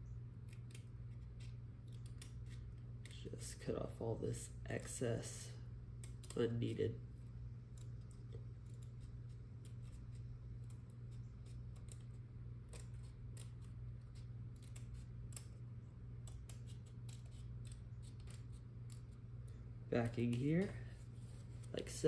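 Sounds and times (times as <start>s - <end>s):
steady low hum: 0.0s - 22.0s
scissors snipping paper: 0.4s - 3.4s, 6.0s - 6.8s, 7.7s - 15.6s, 16.2s - 22.0s.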